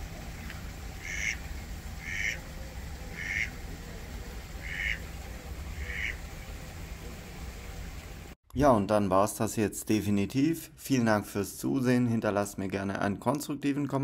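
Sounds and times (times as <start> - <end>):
low background rumble: 0.0 - 8.4
duck quacking: 1.0 - 1.4, 2.0 - 2.5, 3.1 - 3.6, 4.6 - 5.1, 5.8 - 6.2.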